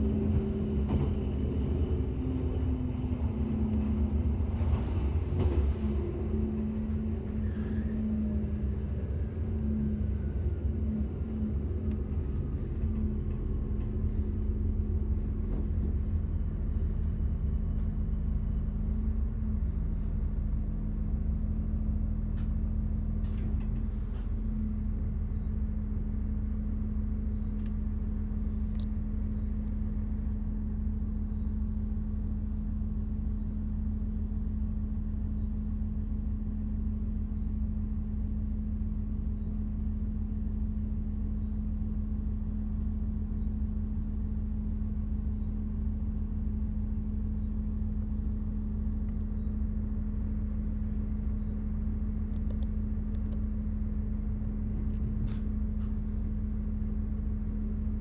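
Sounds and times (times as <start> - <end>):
diesel railcar engine hum: 0.0 - 58.0.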